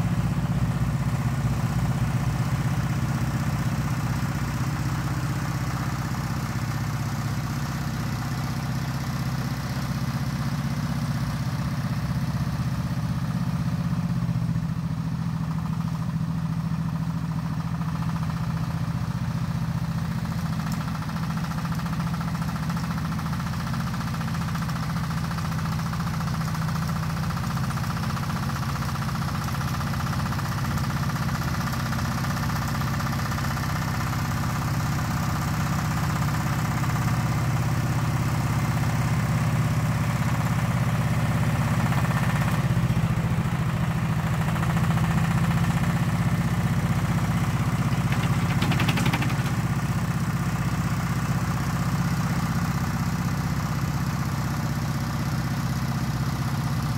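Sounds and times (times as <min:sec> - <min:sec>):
tractor engine running: 0:00.0 - 0:56.9
blade pushing dirt: 0:47.6 - 0:49.8.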